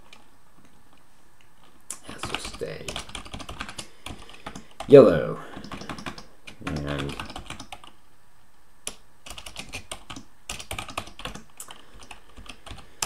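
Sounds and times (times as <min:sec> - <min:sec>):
typing on computer keyboard: 0:02.2 - 0:04.9, 0:05.5 - 0:08.0, 0:08.9 - 0:13.0.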